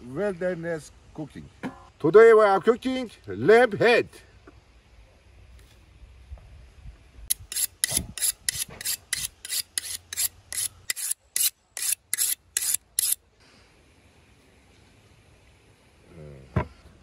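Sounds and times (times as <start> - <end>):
knife rasping on sharpening steel: 7.3 - 13.2.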